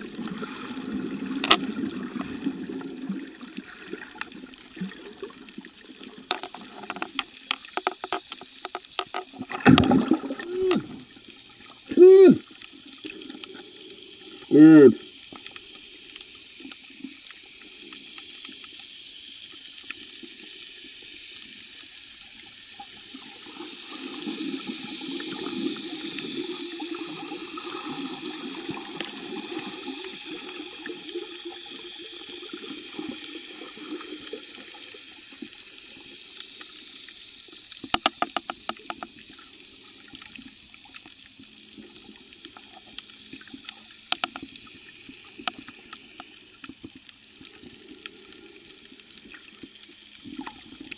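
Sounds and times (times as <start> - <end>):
underwater water wash: 0.0 - 50.9
sharp underwater clicks: 37.7 - 39.2, 42.9 - 47.2.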